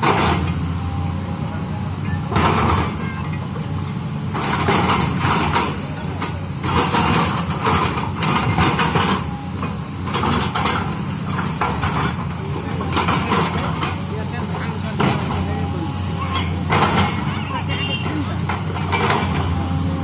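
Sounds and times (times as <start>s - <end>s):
excavator diesel engine running: 0.0s - 20.0s.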